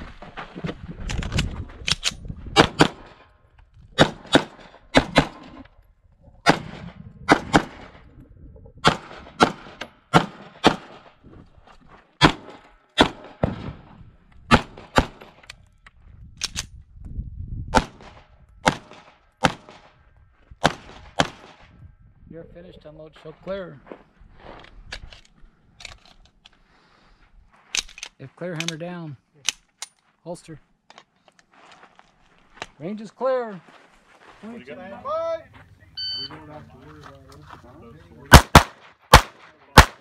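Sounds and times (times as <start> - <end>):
pistol shots in quick pairs: 2.6 - 3.2, 4.0 - 5.5, 6.4 - 7.9, 8.8 - 11.1, 12.2 - 13.8, 14.5 - 15.4, 17.8 - 19.9, 20.6 - 21.6, 38.3 - 40.0.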